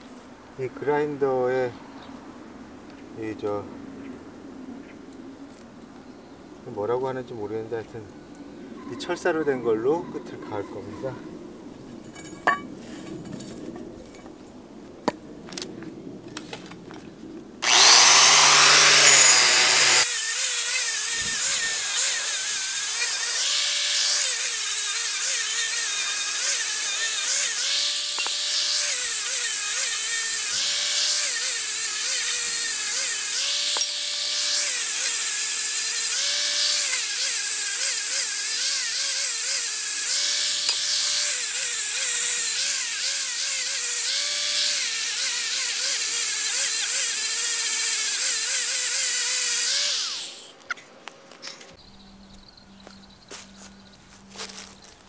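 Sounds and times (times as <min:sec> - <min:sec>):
angle grinder wire brush whine: 0:17.6 - 0:50.6.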